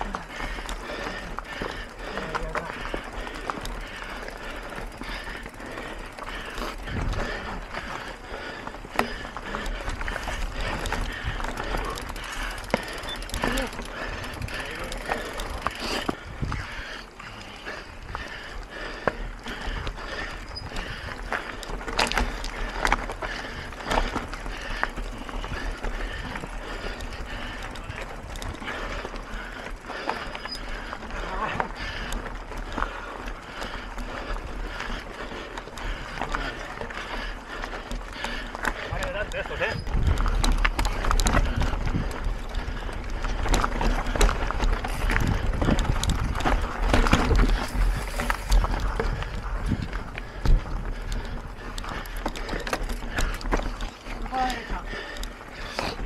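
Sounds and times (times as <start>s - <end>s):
bike clattering over rough trail: 0.0s - 56.0s
wind buffeting microphone: 2.8s - 29.6s, 37.0s - 54.0s
bike knocks and rattles: 8.9s - 16.2s, 39.9s - 51.3s
wind on microphone: 16.2s - 16.7s, 39.7s - 42.5s, 44.1s - 51.6s.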